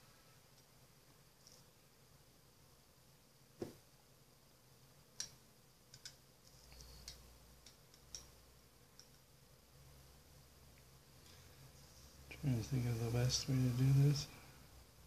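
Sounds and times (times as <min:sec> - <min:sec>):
plastic vials clicking and tapping: 0:05.2 - 0:08.3.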